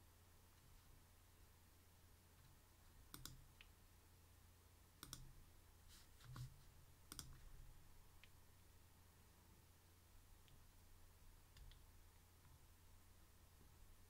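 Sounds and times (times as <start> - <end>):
low steady hum: 0.0 - 14.0
computer mouse clicks: 2.4 - 3.7, 5.0 - 5.4, 7.1 - 7.5, 11.5 - 12.6.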